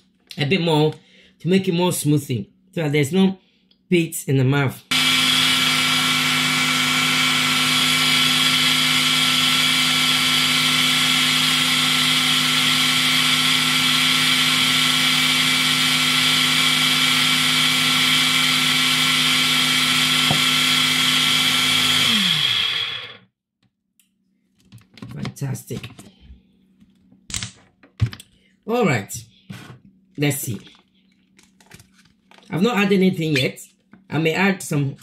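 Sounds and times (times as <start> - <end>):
blender motor winding down: 4.9 - 23.2
blender running: 4.9 - 23.3.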